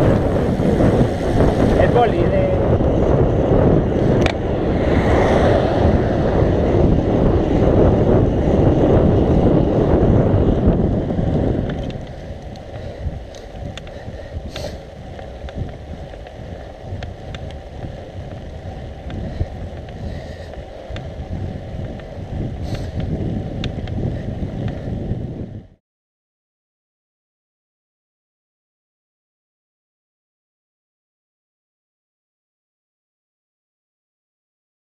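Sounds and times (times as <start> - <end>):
wind rushing over microphone: 0.0 - 25.8.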